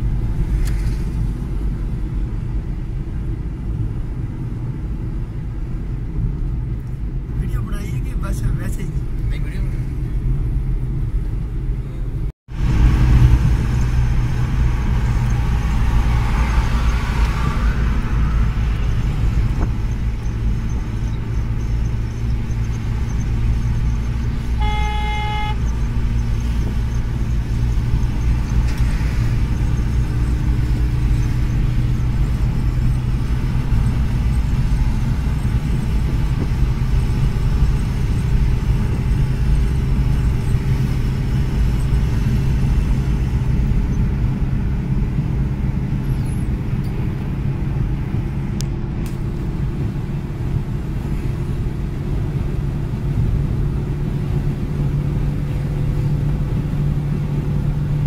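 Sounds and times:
car cabin road rumble: 0.0s - 58.0s
vehicle horn toot: 24.4s - 25.7s.

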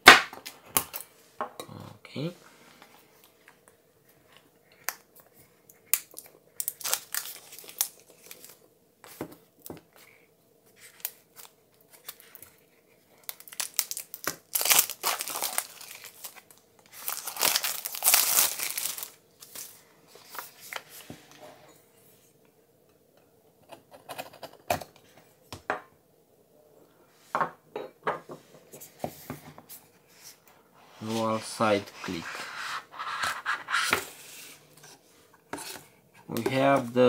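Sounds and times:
wrapping crinkling and tearing: 5.9s - 8.6s, 13.2s - 20.4s.

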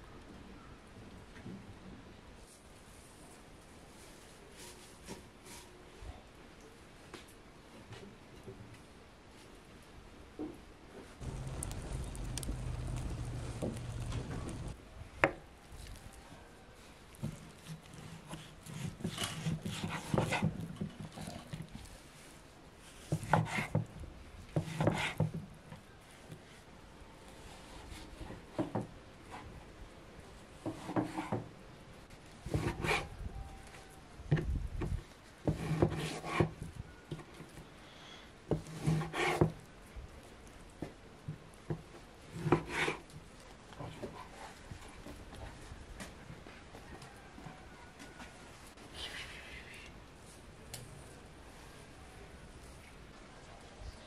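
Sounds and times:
knife slicing meat: 17.5s - 21.6s.

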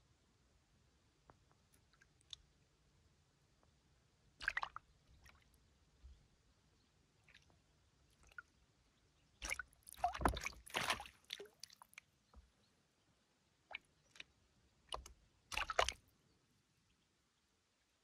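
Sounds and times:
water sloshing and splashing: 4.4s - 5.5s, 9.4s - 12.0s, 14.9s - 16.0s.

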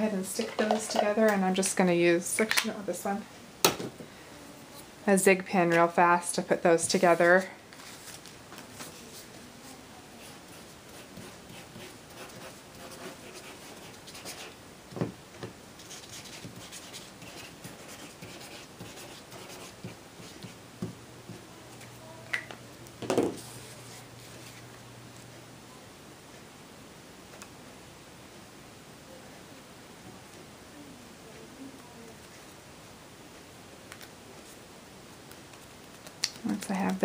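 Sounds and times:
paper handling: 7.3s - 9.4s
pen tip scratching paper: 15.8s - 20.6s.

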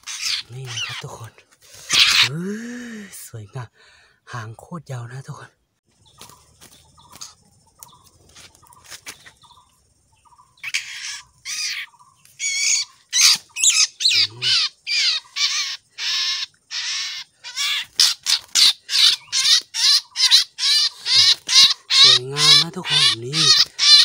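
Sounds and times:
bird squawking harshly: 0.0s - 2.4s, 10.6s - 24.0s.

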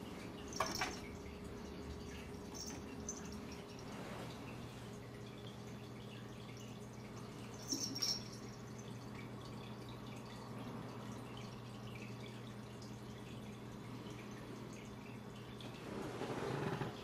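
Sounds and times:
low electrical hum: 0.0s - 17.0s
high clinks: 7.6s - 8.6s.

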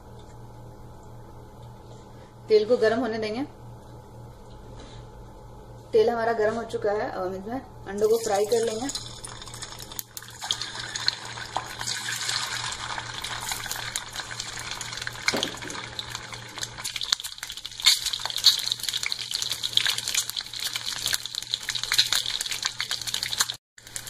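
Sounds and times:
eggs sizzling in oil: 8.0s - 24.0s
oil crackling and popping: 8.1s - 24.0s.

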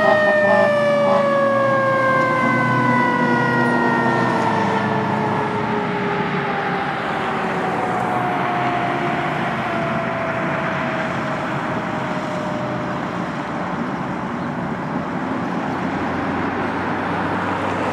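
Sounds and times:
siren sliding down in pitch: 0.0s - 13.2s
fire engine driving: 0.0s - 17.9s.

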